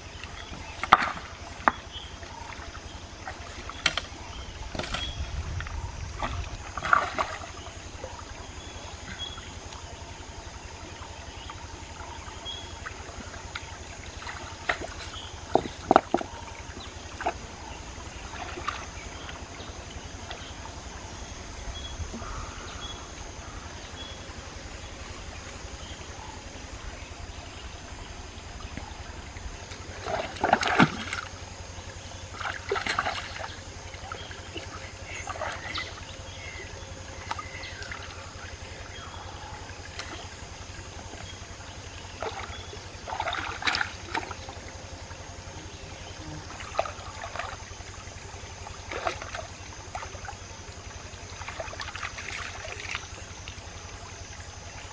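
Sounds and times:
stream trickling: 0.0 - 54.9
hands splashing in stream: 0.2 - 5.4, 6.1 - 7.8, 12.8 - 17.5, 29.6 - 31.5, 32.3 - 36.0, 42.1 - 44.6, 46.5 - 47.8, 48.6 - 50.4, 51.3 - 53.6.

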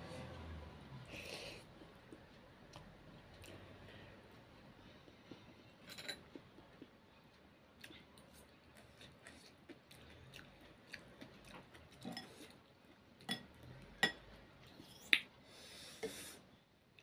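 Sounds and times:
person chewing noodle soup: 4.8 - 14.0.

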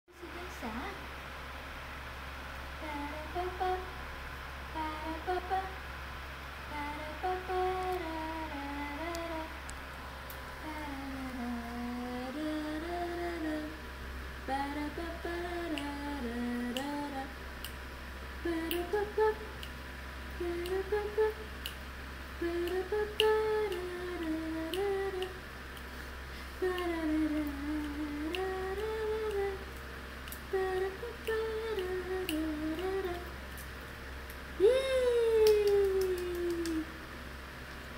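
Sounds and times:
person humming a tune: 2.8 - 3.9, 10.6 - 13.8, 14.5 - 17.3, 18.4 - 19.7, 20.4 - 21.5, 22.4 - 25.4, 26.6 - 29.6, 30.5 - 33.3, 34.6 - 37.0.

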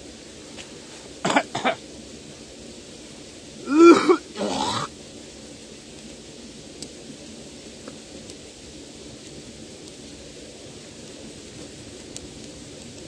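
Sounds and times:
man coughing: 1.3 - 1.8, 3.7 - 4.9
rasping throat-clear: 3.7 - 4.9.

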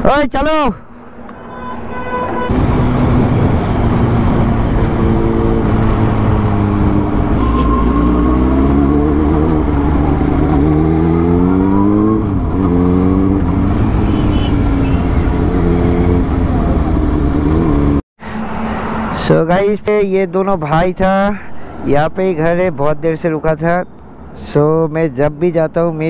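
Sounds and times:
wind and road noise: 0.0 - 26.0
motorcycle engine accelerating: 2.5 - 18.0.

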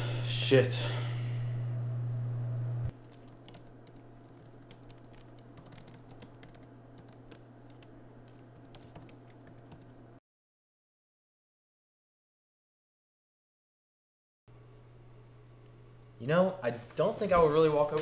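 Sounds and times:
loud low hum: 0.0 - 2.9
laptop keyboard typing: 2.9 - 9.9.

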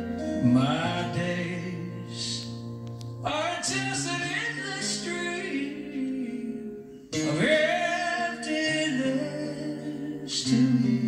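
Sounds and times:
soft instrumental accompaniment: 0.0 - 11.0.

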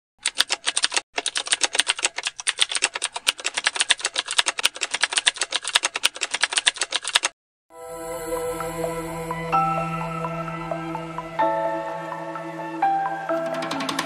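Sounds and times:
rapid keyboard key clicks: 0.2 - 7.3.

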